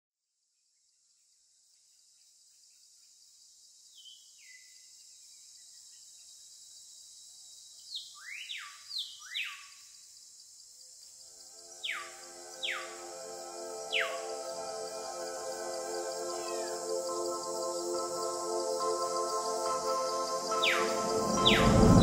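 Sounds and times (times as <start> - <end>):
high insect chorus hiss: 0.7 - 22.0
bird-like chirps: 20.4 - 22.0.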